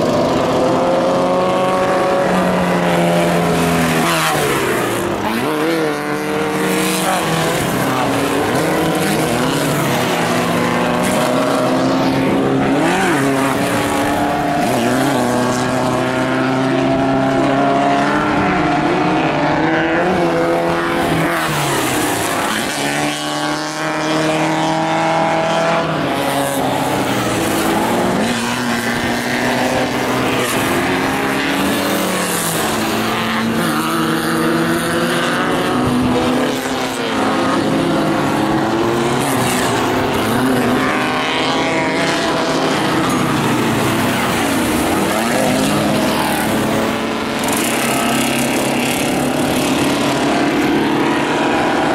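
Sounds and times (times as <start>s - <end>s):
buggy engines revving hard: 0.0s - 51.9s.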